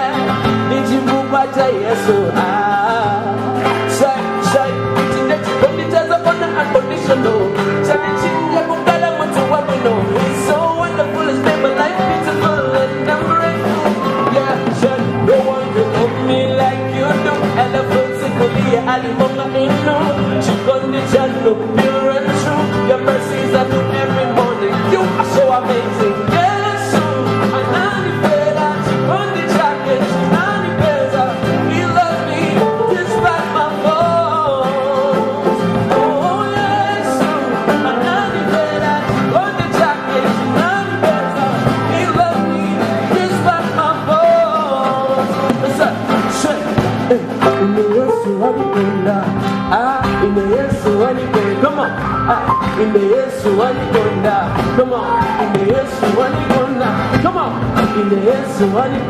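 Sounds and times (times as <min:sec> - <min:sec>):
band accompaniment: 0:00.0 - 0:59.0
man singing worship song: 0:00.0 - 0:59.0.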